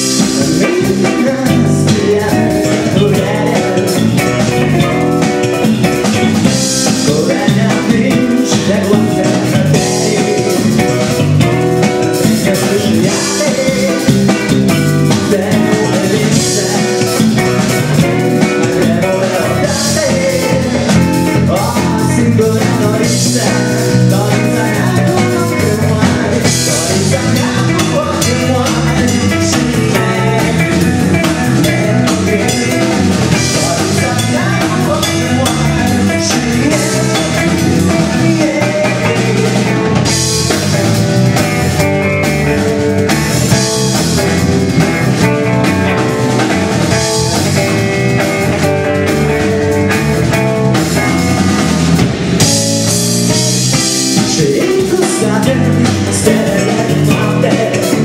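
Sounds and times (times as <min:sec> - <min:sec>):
man singing: 0:00.0 - 0:51.7, 0:52.4 - 0:58.0
drum kit: 0:00.0 - 0:58.0
electric bass: 0:00.0 - 0:58.0
electric guitar: 0:00.0 - 0:58.0.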